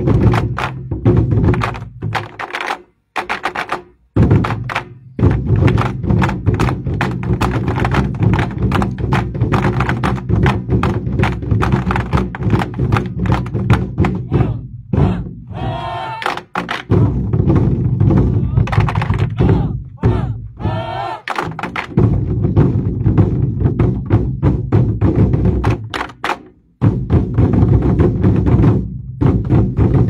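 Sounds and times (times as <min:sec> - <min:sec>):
barrel drums struck in unison: 0:00.0 - 0:02.4, 0:03.2 - 0:30.0.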